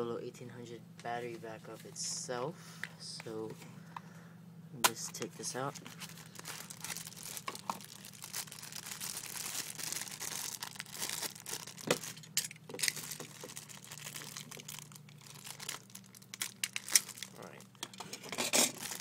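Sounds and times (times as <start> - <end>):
plastic packaging crinkling: 5.0 - 17.8, 18.4 - 19.0.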